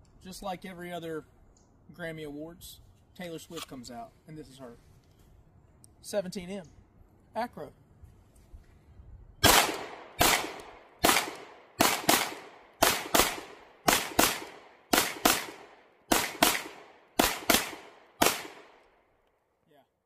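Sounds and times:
pistol shots: 9.4s - 18.9s.

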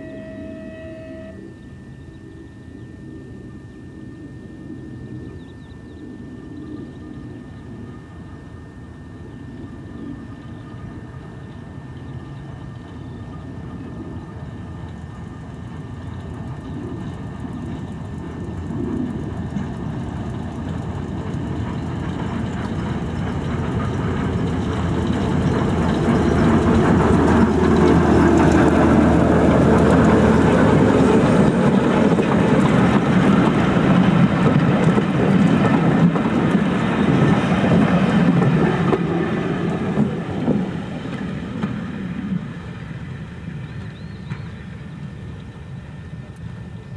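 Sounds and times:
diesel locomotive engine running: 0.0s - 46.9s.

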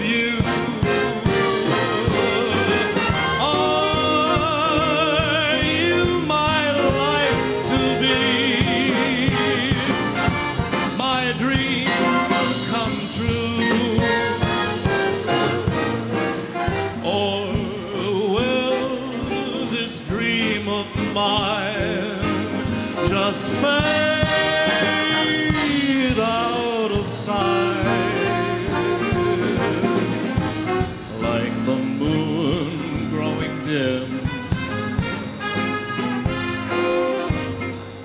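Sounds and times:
big band with saxophones and brass: 0.0s - 38.0s.

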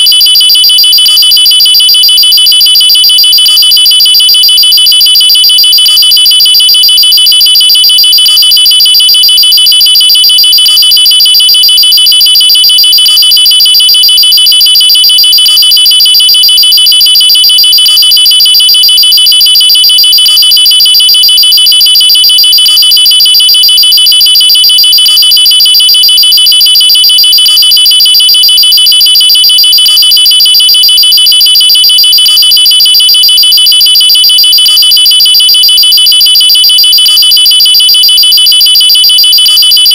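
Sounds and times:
high-pitched trilling alarm tone: 0.0s - 39.9s.

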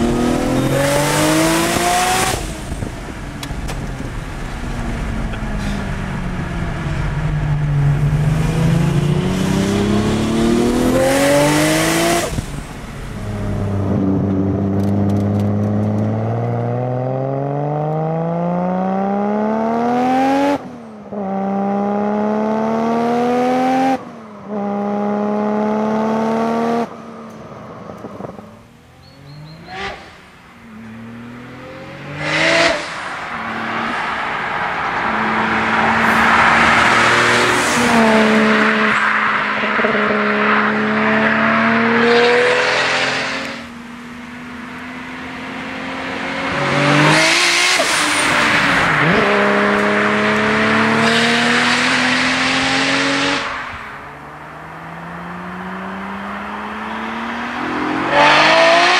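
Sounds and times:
car engine accelerating hard: 0.0s - 26.9s, 29.3s - 58.9s
car passing by: 30.9s - 43.7s.

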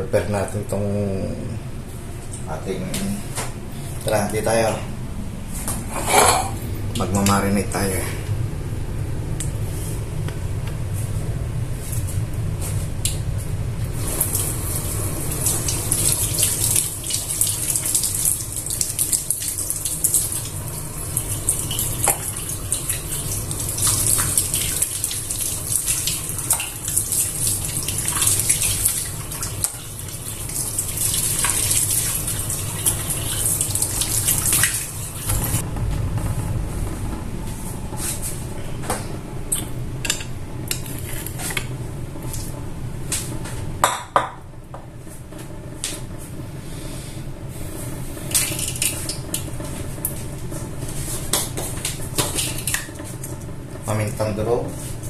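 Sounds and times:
water running from tap into sink: 14.0s - 35.6s.

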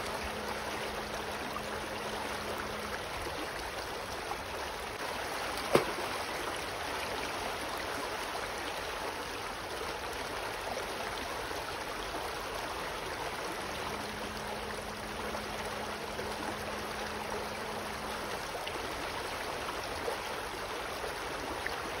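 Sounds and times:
faint low hum: 0.0s - 8.0s, 11.8s - 22.0s
water rushing over rocks: 0.0s - 9.6s.

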